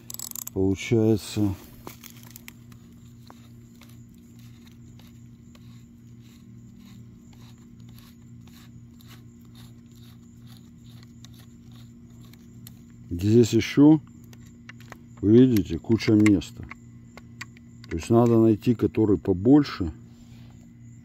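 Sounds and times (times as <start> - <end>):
faint mechanical hum: 0.0 - 21.0.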